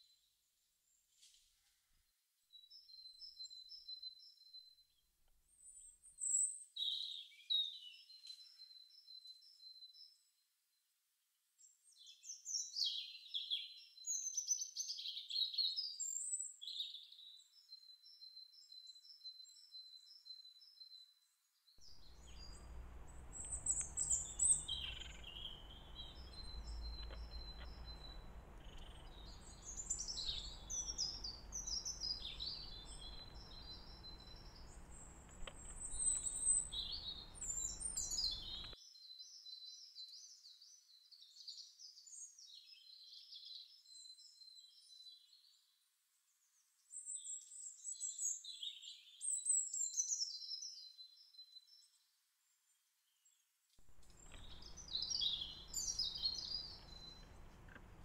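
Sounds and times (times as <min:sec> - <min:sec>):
songbirds chirping: 0:02.5 - 0:10.4, 0:11.6 - 0:58.0
low background rumble: 0:21.8 - 0:38.8.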